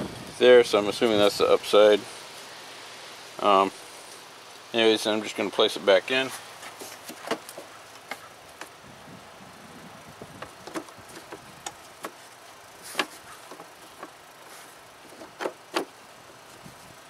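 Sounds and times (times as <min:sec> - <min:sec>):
plastic clicks and knocks: 0:10.4 - 0:12.2.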